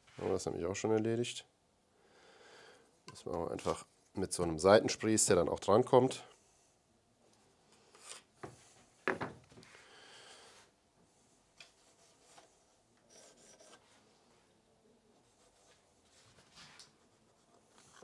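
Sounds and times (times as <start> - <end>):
tool scraping on wood: 13.1 - 13.8.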